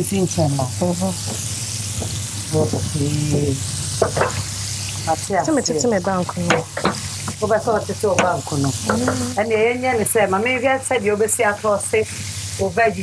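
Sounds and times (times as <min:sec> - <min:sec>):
food sizzling in a pan: 0:00.0 - 0:13.0
person talking: 0:02.5 - 0:03.6, 0:05.0 - 0:06.7, 0:07.3 - 0:10.4.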